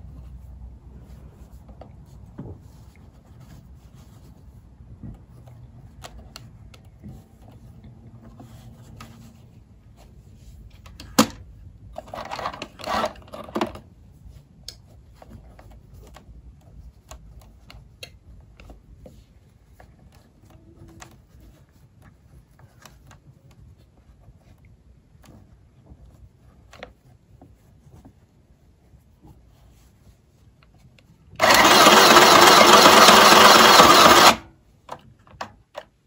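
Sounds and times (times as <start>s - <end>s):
rattle: 31.4s - 34.4s
sewing machine stitching: 31.4s - 34.5s.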